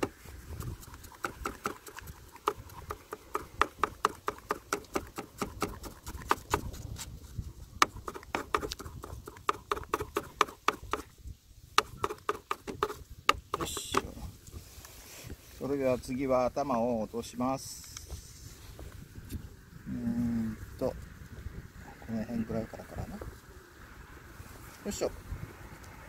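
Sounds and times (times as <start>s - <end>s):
fish scaler scraping scales: 0.0s - 7.0s.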